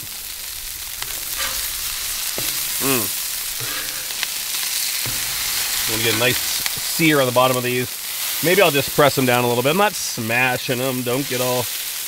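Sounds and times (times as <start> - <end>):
burger patties sizzling on griddle: 0.0 - 12.0
metal spatula scraping griddle: 0.1 - 7.5.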